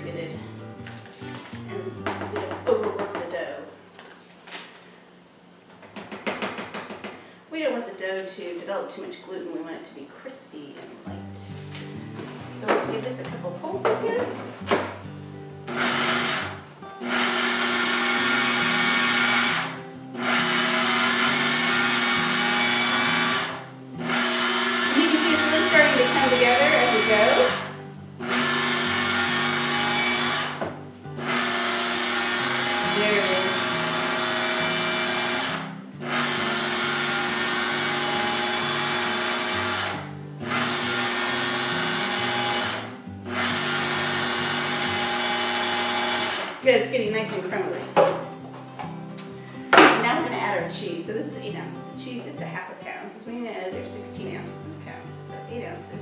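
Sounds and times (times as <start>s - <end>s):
food processor motor: 15.7s - 46.6s.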